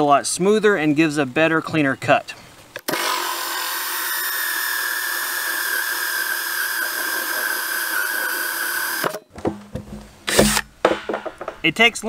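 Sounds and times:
cordless drill motor whine: 0:02.9 - 0:09.2.

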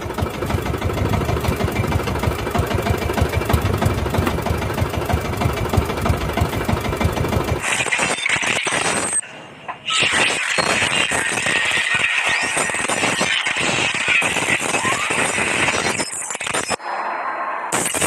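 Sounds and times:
boat engine knocking: 0:00.0 - 0:07.6.

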